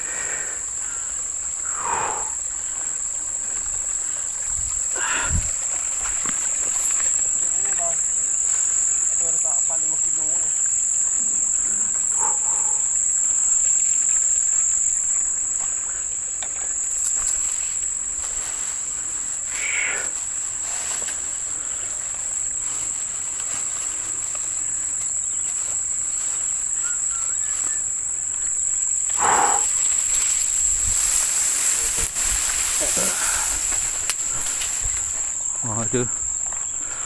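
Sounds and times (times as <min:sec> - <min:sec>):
insects shrilling: 0:00.0 - 0:37.0.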